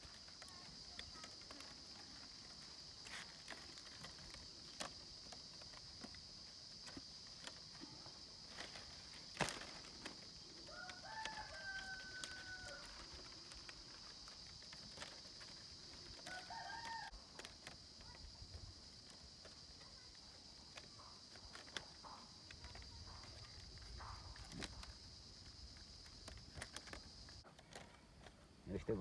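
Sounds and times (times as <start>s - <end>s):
bamboo strips clicking and snapping: 0.0s - 29.0s
rooster crowing: 10.6s - 13.1s, 16.2s - 17.2s.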